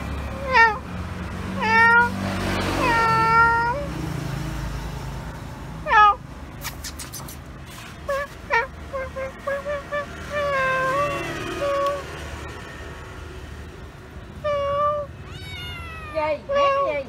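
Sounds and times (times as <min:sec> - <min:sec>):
cat meowing: 0:00.4 - 0:00.8, 0:01.6 - 0:02.1, 0:02.8 - 0:03.8, 0:05.9 - 0:06.2, 0:14.5 - 0:16.8.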